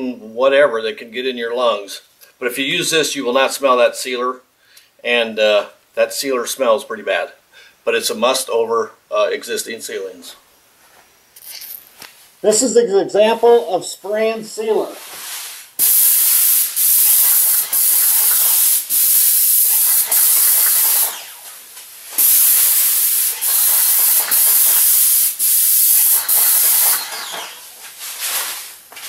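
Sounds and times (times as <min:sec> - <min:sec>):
spray gun hissing: 0:15.1 - 0:28.9.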